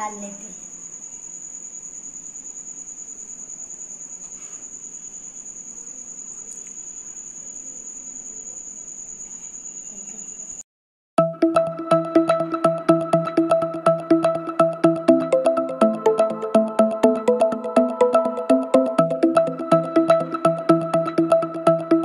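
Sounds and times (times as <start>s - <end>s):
cricket chirping: 0.0s - 10.6s.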